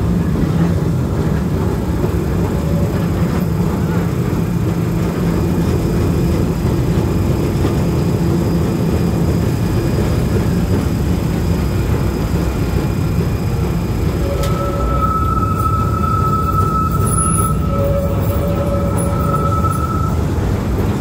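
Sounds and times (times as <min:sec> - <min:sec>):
tram wheels rumbling on rails: 0:00.0 - 0:21.0.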